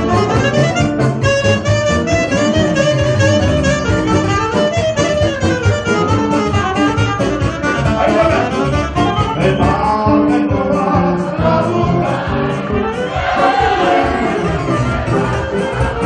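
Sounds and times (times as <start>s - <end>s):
live band playing up-tempo music: 0.0s - 16.0s
saxophone lead: 0.0s - 16.0s.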